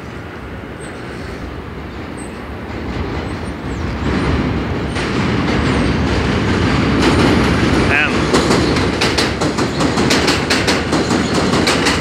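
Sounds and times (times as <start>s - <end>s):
subway train rumbling: 0.0s - 12.0s.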